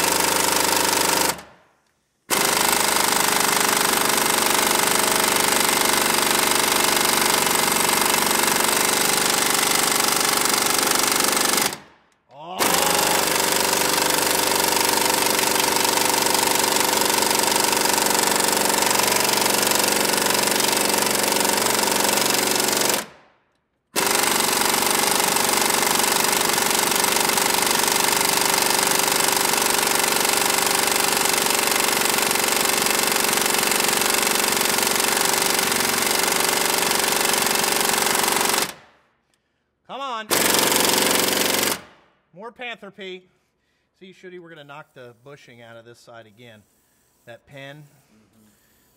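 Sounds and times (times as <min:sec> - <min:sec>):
pneumatic air hammer hammering: 0:02.3 - 0:11.8, 0:12.6 - 0:23.1, 0:23.9 - 0:38.8, 0:40.3 - 0:41.9.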